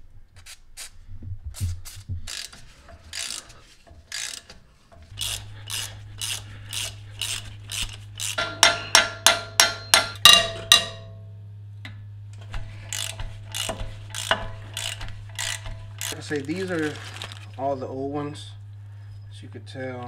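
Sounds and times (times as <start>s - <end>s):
steady low hum: 0.0s - 20.0s
socket ratchet clicking: 2.3s - 8.4s, 12.9s - 16.2s.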